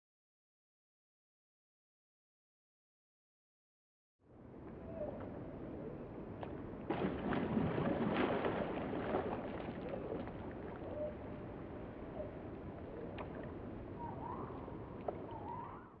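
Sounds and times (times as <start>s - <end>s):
large animal splashing in water: 6.9s - 11.0s
water sloshing and lapping: 6.9s - 11.7s, 13.0s - 13.8s, 14.4s - 15.8s.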